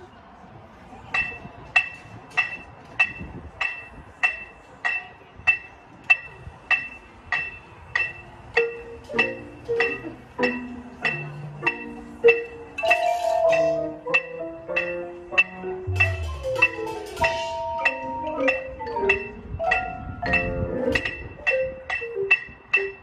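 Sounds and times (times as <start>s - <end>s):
electronic metronome clicking: 8.0s - 23.0s
marimba melody: 8.6s - 23.0s
held note with hiss: 8.7s - 18.2s.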